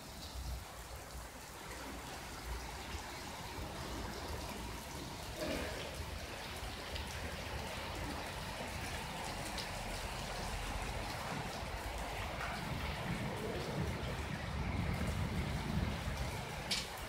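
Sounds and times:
steady rain hiss: 0:00.0 - 0:17.0
raindrop ticks: 0:05.4 - 0:17.0.

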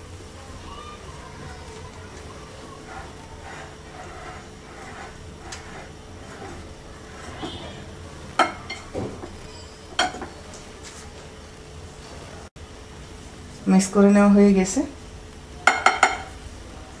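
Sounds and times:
whisk scraping flour: 0:01.2 - 0:10.3.

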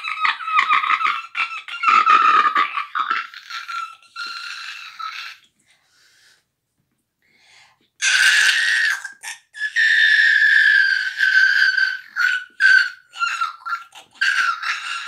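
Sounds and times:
person laughing high-pitched: 0:00.0 - 0:05.4.

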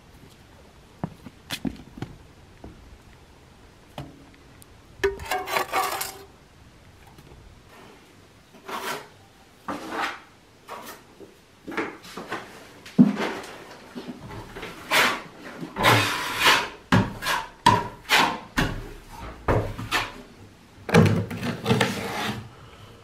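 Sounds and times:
trowel scraping a bucket: 0:05.1 - 0:06.3, 0:08.6 - 0:11.1, 0:14.5 - 0:18.5, 0:19.1 - 0:20.2, 0:21.3 - 0:22.5.

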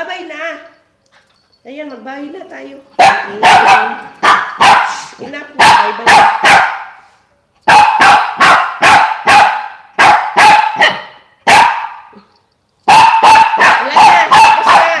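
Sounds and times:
small dog barking: 0:03.0 - 0:07.0, 0:07.7 - 0:12.3, 0:12.9 - 0:15.0.

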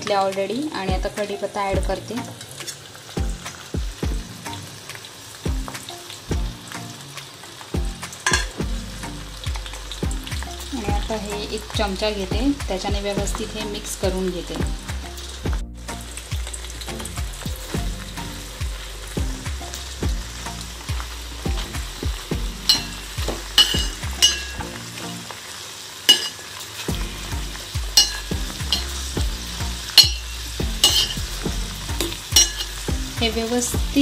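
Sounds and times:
leaves sizzling in hot oil: 0:00.0 - 0:34.0
spoon clinking and scraping pot: 0:08.2 - 0:08.6, 0:22.7 - 0:24.6, 0:26.1 - 0:26.6, 0:28.0 - 0:29.1, 0:29.9 - 0:31.3, 0:32.0 - 0:32.9.

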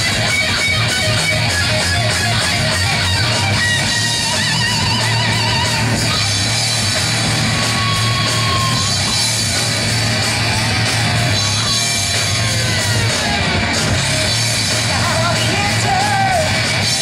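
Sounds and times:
lead guitar wavering held notes: 0:00.0 - 0:13.8
heavy metal band playing: 0:00.0 - 0:17.0.

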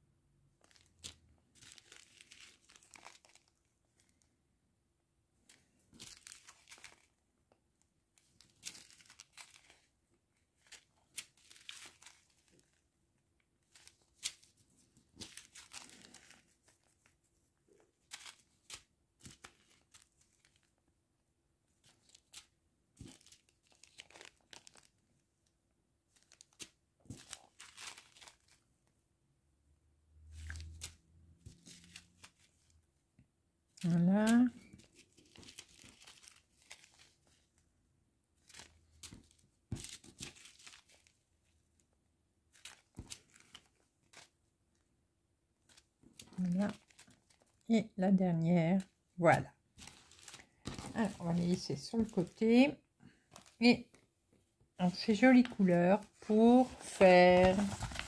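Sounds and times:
plastic bags crinkling: 0:00.6 - 0:04.2, 0:06.0 - 0:07.1, 0:08.5 - 0:09.9, 0:15.2 - 0:16.5, 0:23.0 - 0:24.9, 0:26.2 - 0:28.6, 0:49.8 - 0:52.5, 0:55.0 - 0:58.0.

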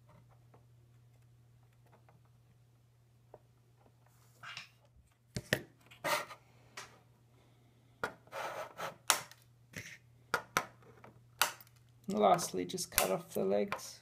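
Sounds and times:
circuit board rubbing scrapes: 0:08.3 - 0:09.0.

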